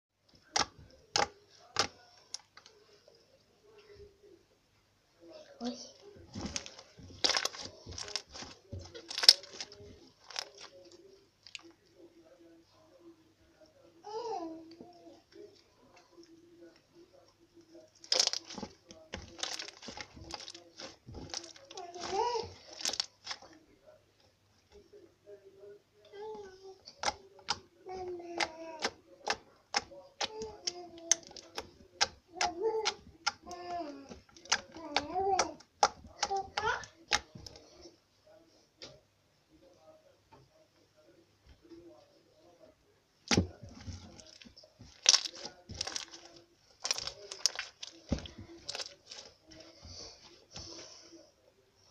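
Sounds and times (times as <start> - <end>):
slime squishing: 0.3 - 2.8, 5.9 - 11.8, 17.8 - 23.6, 26.9 - 37.8, 43.2 - 50.0.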